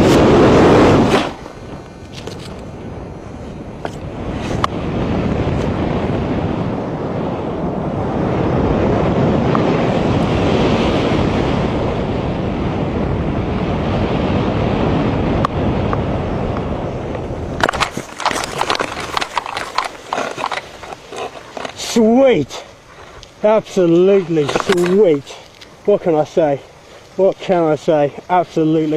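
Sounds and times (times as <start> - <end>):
wind rushing over microphone: 0.0 - 28.9
scuffing and rustling on grass: 17.6 - 28.9.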